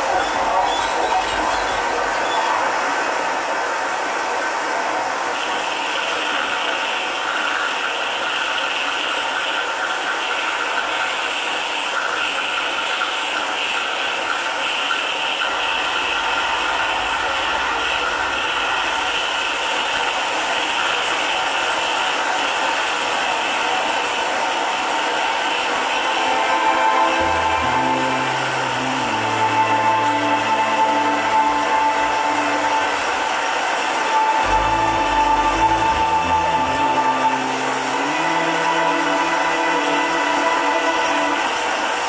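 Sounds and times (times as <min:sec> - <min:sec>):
high hissing layer: 0:15.7 - 0:42.0
grinding mechanical noise music: 0:23.8 - 0:42.0.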